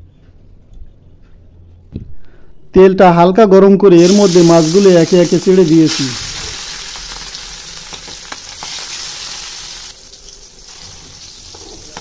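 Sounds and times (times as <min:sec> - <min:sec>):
fish sizzling in hot oil: 0:04.0 - 0:12.0.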